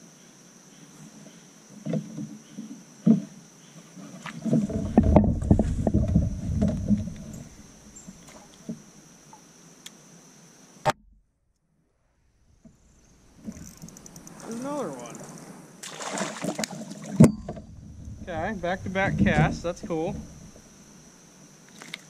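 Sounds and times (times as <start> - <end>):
high insect drone: 0.0 - 10.9, 11.7 - 22.0
knocks and thumps on kayak hull: 1.8 - 3.4, 4.2 - 8.8, 16.1 - 20.7.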